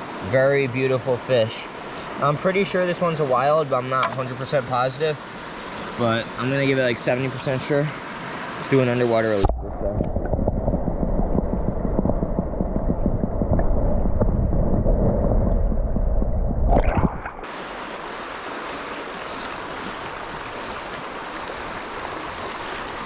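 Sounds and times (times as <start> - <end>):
stream rushing: 0.0 - 9.5, 16.8 - 23.0
underwater river gurgle: 0.0 - 23.0.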